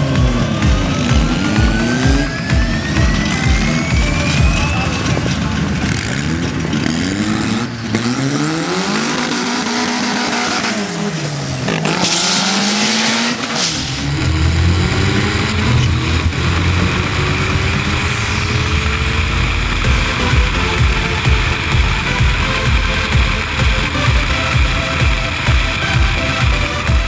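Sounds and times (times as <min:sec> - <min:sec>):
heavy low rumble: 0:00.0 - 0:08.0, 0:13.6 - 0:27.0
drag car engine revving: 0:00.0 - 0:27.0
loud hissing rush: 0:00.0 - 0:27.0.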